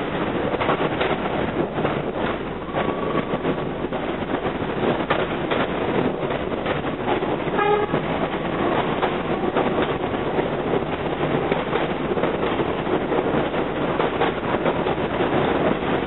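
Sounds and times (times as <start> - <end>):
train running noise: 0.0 - 16.0
train wheels clicking over rail joints: 0.0 - 16.0.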